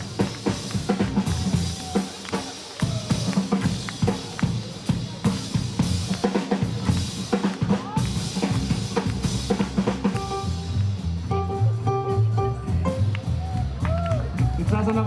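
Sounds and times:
rock drum break: 0.0s - 15.0s
double bass notes: 8.0s - 15.0s
piano chords: 10.1s - 13.3s.

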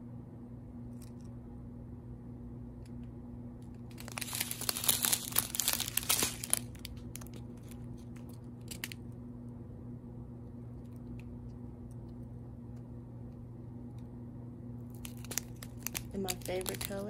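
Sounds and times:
faint steady low hum: 0.0s - 17.0s
plastic bags crinkling: 3.8s - 9.0s, 14.9s - 17.0s.

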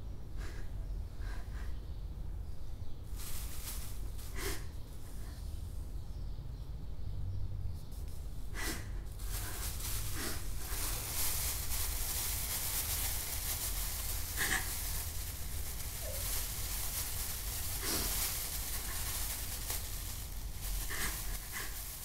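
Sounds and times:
steady hiss: 3.0s - 6.0s, 8.0s - 22.0s.

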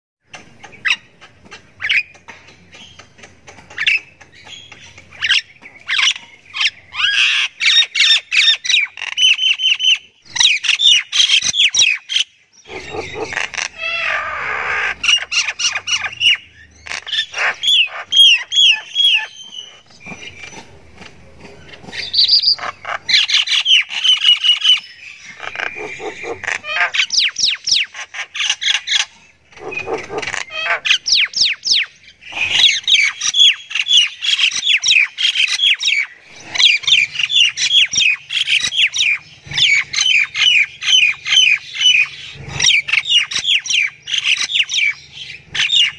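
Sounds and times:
bird rasping squawk: 12.7s - 20.4s, 21.9s - 45.9s
bird chirping and whistling: 14.7s - 20.6s, 22.0s - 22.6s.

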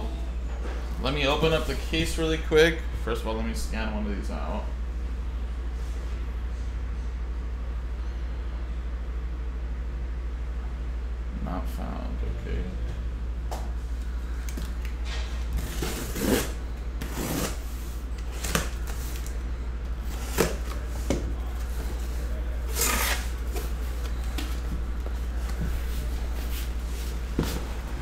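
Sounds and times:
steady low hum: 0.0s - 28.0s
cardboard tearing and rustling: 15.5s - 19.3s, 22.6s - 23.8s.

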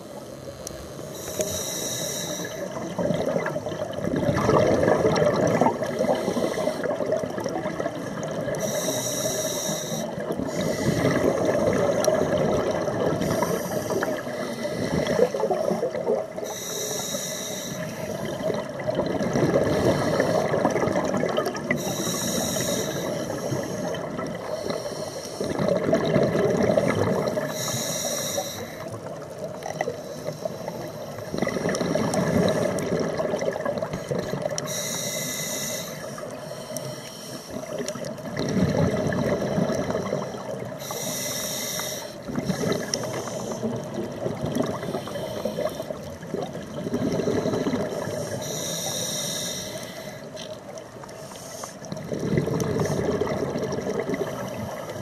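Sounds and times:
regulator inhale hiss: 0.1s - 2.9s, 5.8s - 7.2s, 8.5s - 18.5s, 19.6s - 20.7s, 21.6s - 25.7s, 26.8s - 32.8s, 33.9s - 38.2s, 40.1s - 44.0s, 44.6s - 46.2s, 47.0s - 52.0s
exhaled air bubbling: 1.0s - 55.0s.

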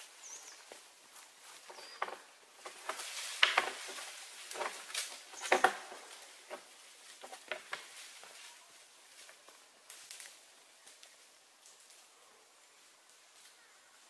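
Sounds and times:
faint bird chirp: 0.0s - 0.8s, 1.6s - 2.3s, 13.4s - 14.0s
dry leaves rustling underfoot: 0.0s - 14.0s.

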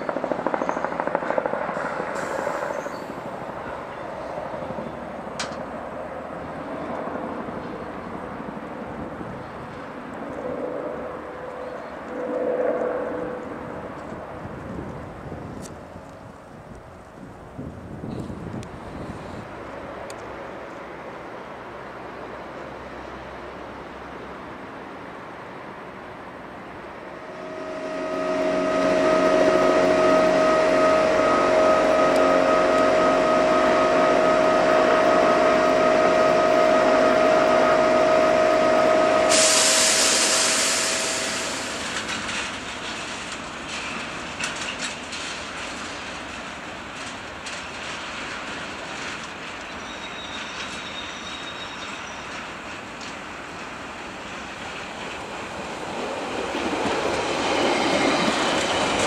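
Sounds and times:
trains rumbling and rattling: 0.0s - 59.0s
loud whine with overtones: 27.2s - 42.6s.

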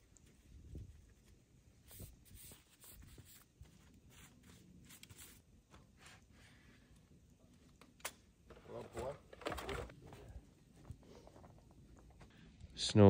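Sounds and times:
soft scrapes or rustles: 0.0s - 7.0s, 8.6s - 12.3s.

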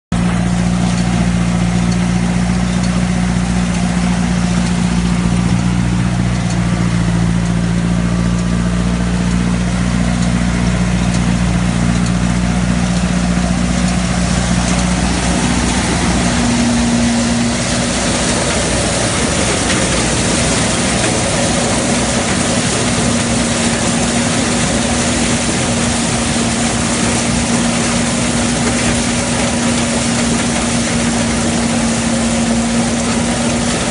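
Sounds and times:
thresher machine running: 0.1s - 33.9s.

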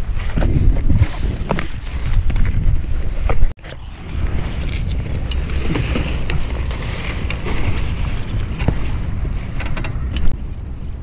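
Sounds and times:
wind buffeting microphone: 0.0s - 11.0s
leafy branches rustling: 3.9s - 9.6s.

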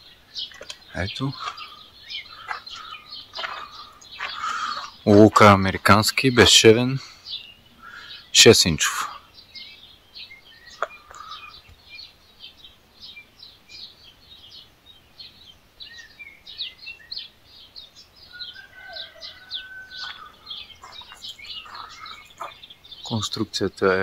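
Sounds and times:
small birds chirping: 0.0s - 24.0s
whistled bird notes: 15.2s - 17.4s, 18.2s - 23.2s.

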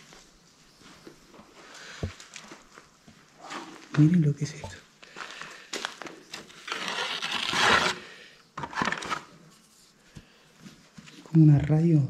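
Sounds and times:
footsteps crunching over debris: 0.0s - 6.7s.

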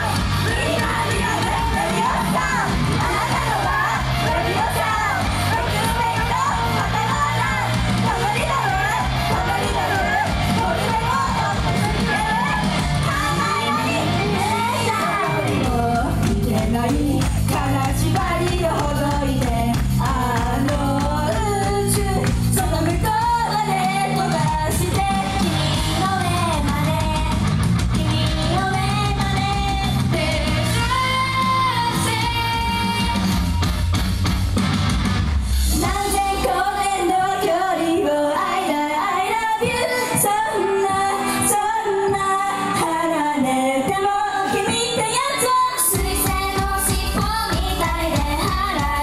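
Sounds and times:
woman singing pop song: 0.0s - 33.6s, 35.7s - 49.0s
heavy bass: 0.0s - 37.3s
backing track: 0.0s - 49.0s.

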